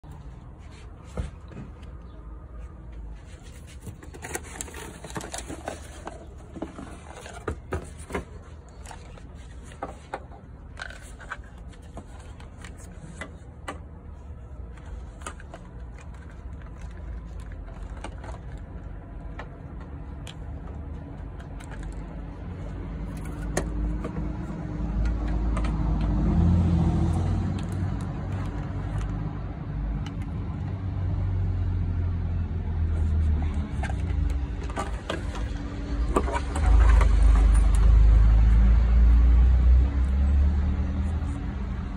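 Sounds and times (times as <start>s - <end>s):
clicks and knocks of plastic parts: 3.2s - 26.2s, 27.4s - 30.8s, 33.5s - 37.9s.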